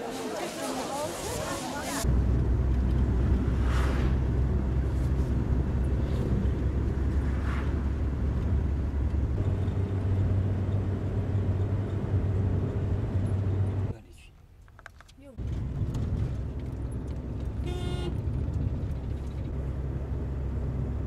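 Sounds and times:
van engine and road noise: 0.0 - 14.0, 14.9 - 21.0
brief rushes of noise: 3.6 - 4.3.

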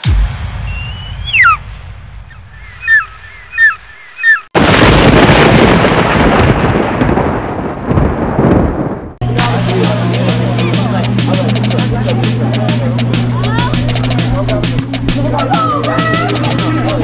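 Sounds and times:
low rumble: 0.0 - 4.0
bird of prey cries: 0.7 - 1.6, 2.6 - 4.5
thunder clap rolling: 4.6 - 10.0.

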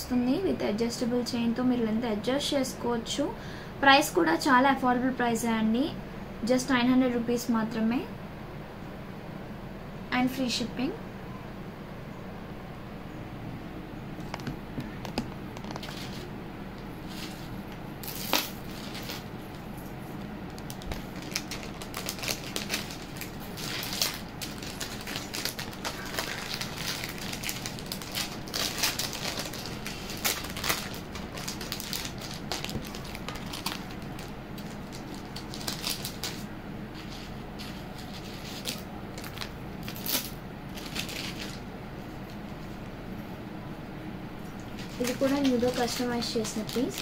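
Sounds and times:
crackling and clicking handling noise: 14.2 - 43.0, 44.4 - 47.0.

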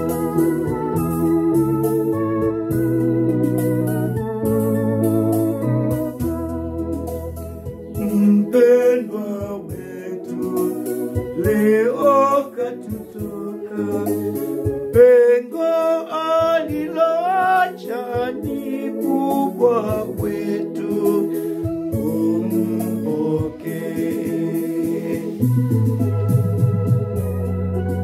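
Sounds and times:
electronic organ chords: 0.0 - 28.0
two men singing: 8.0 - 25.8.

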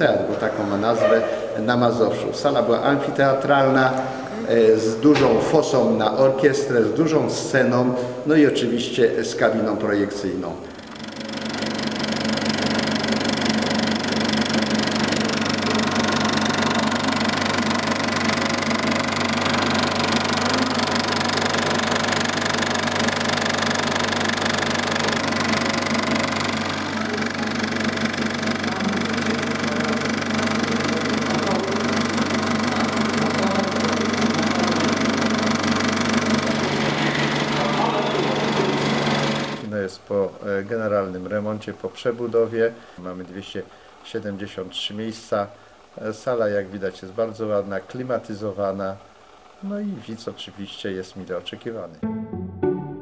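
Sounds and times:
motor hum: 10.4 - 39.7
film projector clatter: 10.6 - 39.7.

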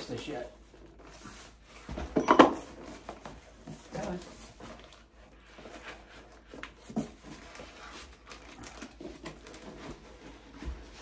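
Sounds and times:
cardboard rubbing and scraping: 2.9 - 11.0.

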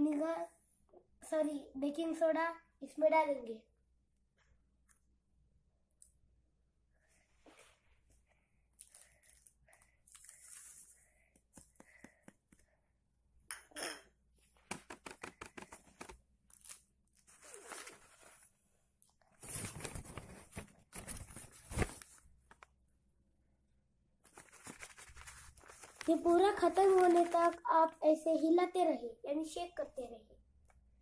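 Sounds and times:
newspaper rustling and crinkling: 14.7 - 18.6, 19.4 - 22.7, 24.3 - 28.0.

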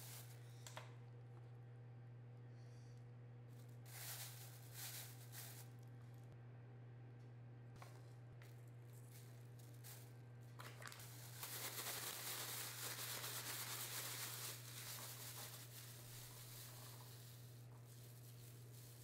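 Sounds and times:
steady low hum: 0.0 - 19.0
plastic bag crinkling: 3.9 - 5.9, 8.5 - 19.0.

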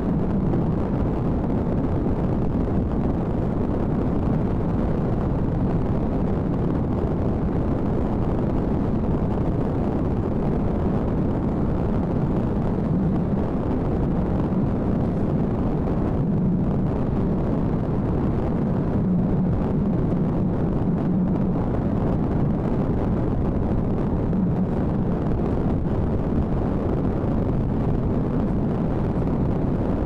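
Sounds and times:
car driving heard from inside: 10.2 - 29.7.

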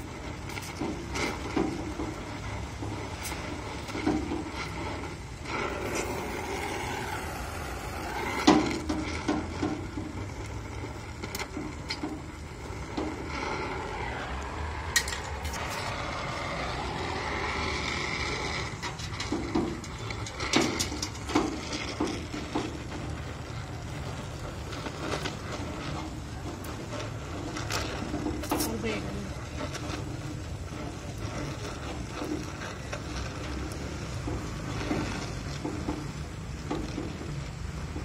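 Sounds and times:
welding torch hissing: 0.0 - 9.2, 9.8 - 21.3, 28.3 - 34.8
weld pops and crackles: 23.9 - 29.0.

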